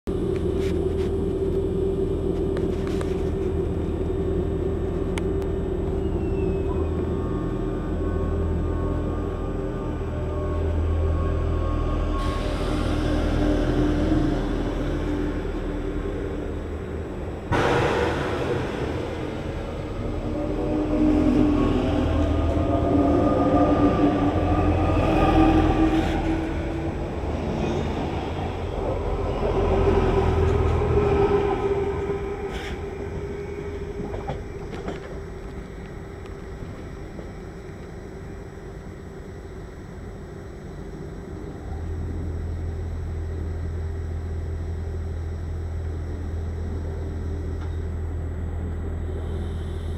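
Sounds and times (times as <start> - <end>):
train wheels rumbling: 0.1 - 38.8
steady low hum: 0.1 - 49.9
train traction motors whining: 0.1 - 49.9.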